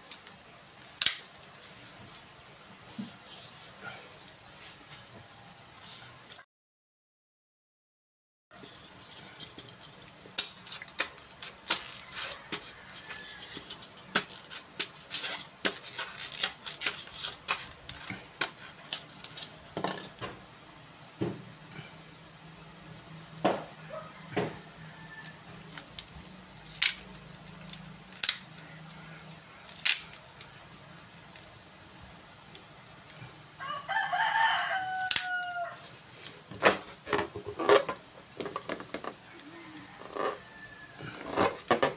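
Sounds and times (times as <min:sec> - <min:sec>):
distant crowing call: 0:33.6 - 0:36.0, 0:39.3 - 0:41.5.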